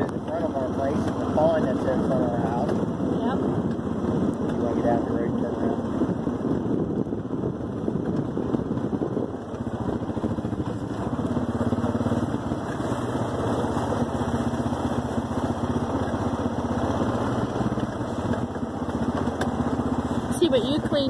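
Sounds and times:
atv engine running: 0.0 - 21.0.

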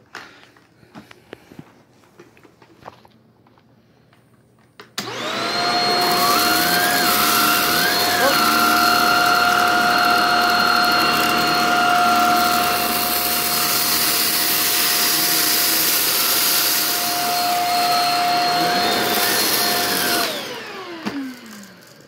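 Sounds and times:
vacuum cleaner high whine: 5.0 - 22.0.

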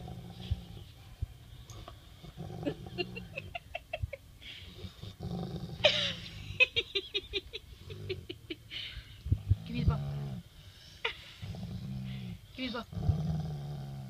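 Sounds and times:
dog low rumbling purr: 0.0 - 3.8, 4.6 - 6.6, 9.2 - 14.0.

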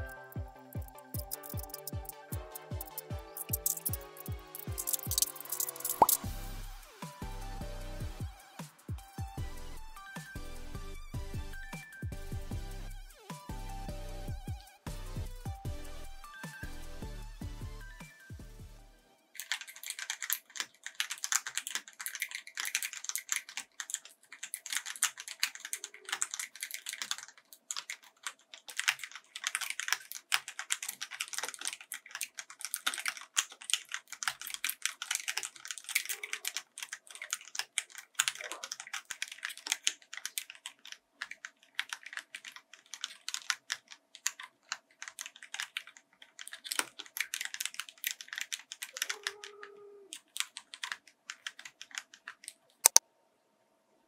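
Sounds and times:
fast mechanical keyboard typing: 0.0 - 6.2, 19.4 - 49.5, 50.1 - 53.0.

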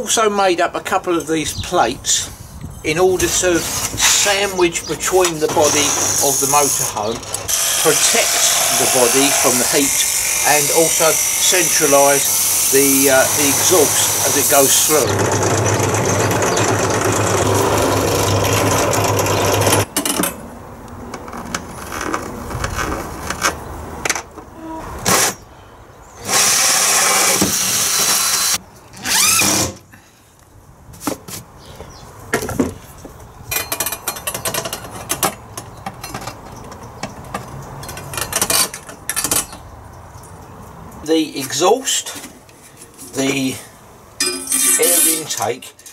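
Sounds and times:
cordless drill cutting: 5.6 - 19.8, 26.2 - 29.7
pillar drill cutting metal: 5.6 - 19.8, 26.2 - 29.6.

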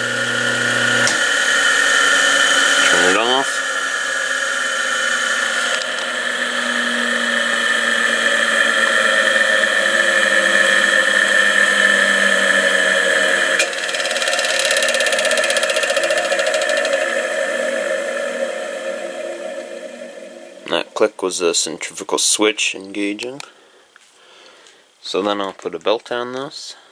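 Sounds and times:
electric motor coasting down: 0.0 - 21.1.

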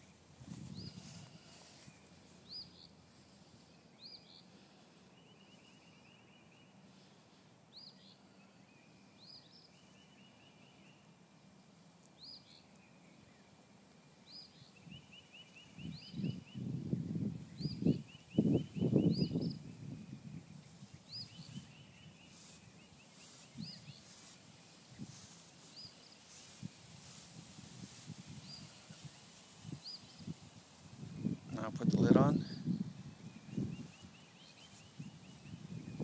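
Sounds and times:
bird chirping: 0.0 - 7.1, 7.7 - 30.4, 31.2 - 36.0.

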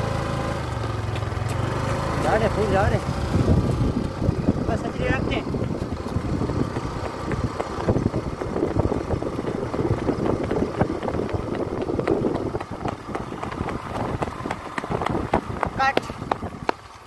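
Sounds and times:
running footsteps on road: 0.0 - 17.0
wind rumble on microphone: 2.2 - 17.0.

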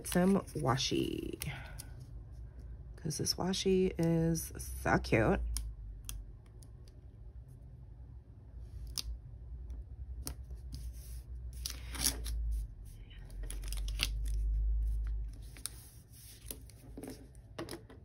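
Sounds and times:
hand rubbing paper page: 10.7 - 13.0, 14.8 - 17.3.

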